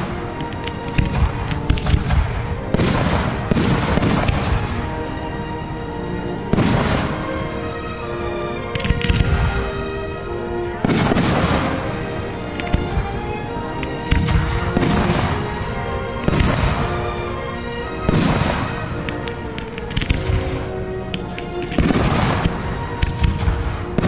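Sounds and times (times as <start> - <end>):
firework shells booming: 0.0 - 4.9, 6.5 - 7.5, 10.8 - 13.2, 18.1 - 20.7
firework crackling: 0.0 - 5.0, 6.5 - 7.6, 8.7 - 9.9, 10.8 - 17.2, 18.0 - 24.0
music: 0.0 - 24.0.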